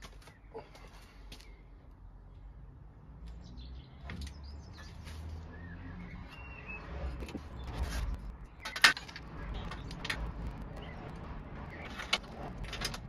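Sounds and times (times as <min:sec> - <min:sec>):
distant traffic rumble: 0:00.0 - 0:13.0
bird chirping: 0:03.3 - 0:10.0, 0:10.6 - 0:12.0
metal fixings clicking and tapping: 0:08.5 - 0:10.3.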